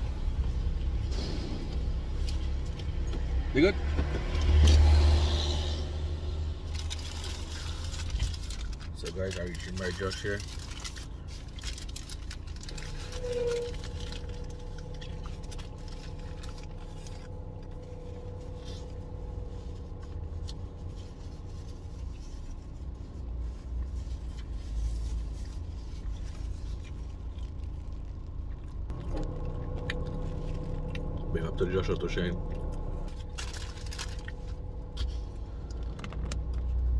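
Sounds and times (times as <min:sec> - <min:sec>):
car interior hum: 0:00.0 - 0:36.9
paper wrapper rustling: 0:06.6 - 0:28.4, 0:32.7 - 0:36.9.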